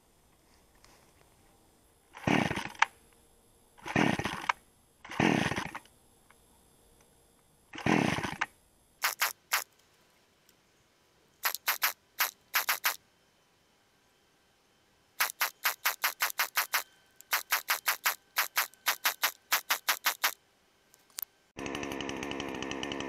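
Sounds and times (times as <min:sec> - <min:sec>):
chainsaw starter cord whirr: 0:02.1 - 0:02.9, 0:03.8 - 0:05.9, 0:07.8 - 0:09.6, 0:11.4 - 0:13.0, 0:15.2 - 0:20.4, 0:21.6 - 0:23.0
sharp high-pitched sounds: 0:09.0 - 0:09.7, 0:11.4 - 0:13.0, 0:15.2 - 0:20.4.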